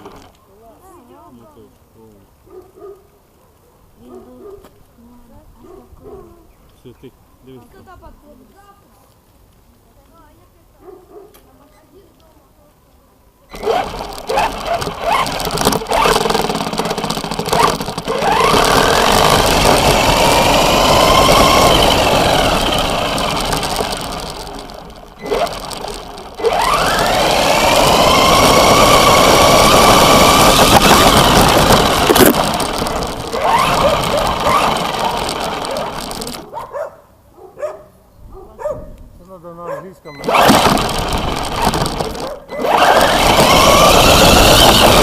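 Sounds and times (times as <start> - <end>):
rc car motor whine: 0.0 - 0.4, 13.5 - 36.5, 40.2 - 45.0
tyres on gravel: 0.0 - 1.8, 13.5 - 36.9, 40.2 - 45.0.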